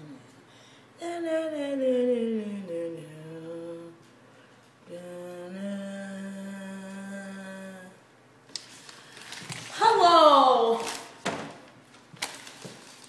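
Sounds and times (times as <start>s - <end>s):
person singing wordlessly: 1.0s - 4.1s, 4.8s - 8.0s.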